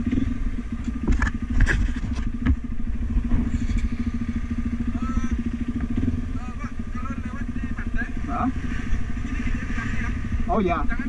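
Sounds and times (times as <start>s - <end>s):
sharp knocks and rattles: 0.0s - 3.8s
dirt bike engine running: 0.0s - 11.0s.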